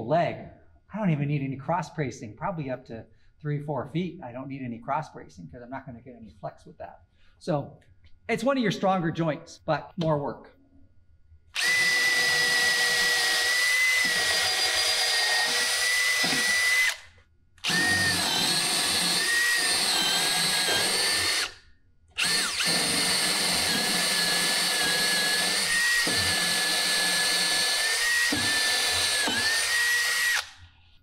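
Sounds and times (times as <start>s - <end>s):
cordless drill boring wood: 11.6s - 21.6s, 22.2s - 30.6s.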